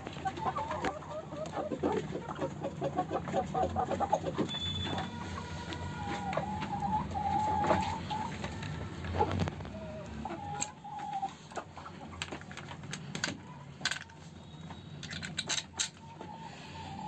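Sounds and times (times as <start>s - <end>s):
hens calling: 0.1s - 12.4s, 16.0s - 17.0s.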